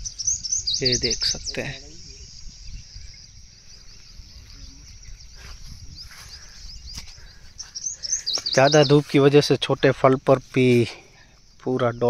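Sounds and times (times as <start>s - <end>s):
wind rumble on microphone: 0.0s - 7.8s
high bird chirps: 0.0s - 12.0s
insect hum: 0.0s - 12.0s.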